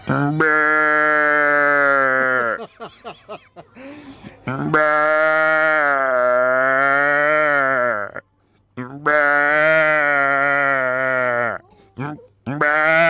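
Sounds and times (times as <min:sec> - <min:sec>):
man imitating calf bawling: 0:04.5 - 0:08.2, 0:08.8 - 0:13.0.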